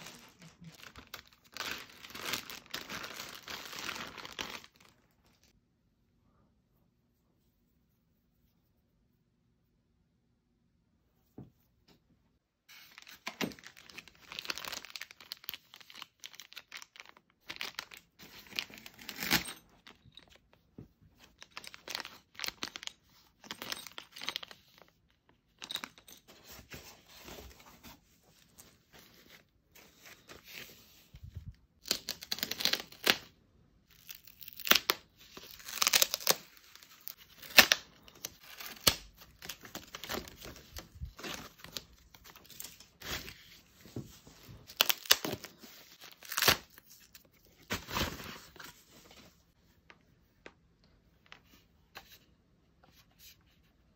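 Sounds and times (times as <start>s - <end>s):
plastic bags crinkling: 0.0s - 5.4s, 13.4s - 20.3s.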